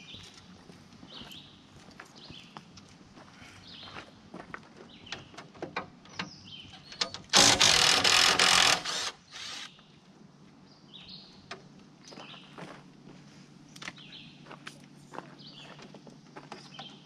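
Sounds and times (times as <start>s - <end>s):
cordless impact wrench hammering: 7.3s - 9.7s.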